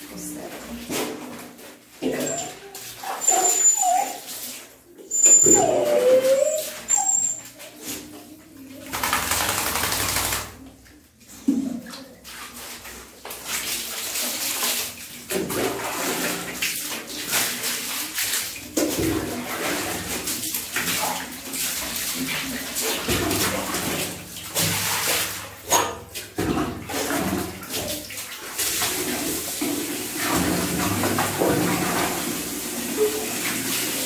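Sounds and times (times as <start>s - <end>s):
water splashing and running: 0.0s - 34.0s
dog whimpering: 2.2s - 4.3s, 5.1s - 7.4s.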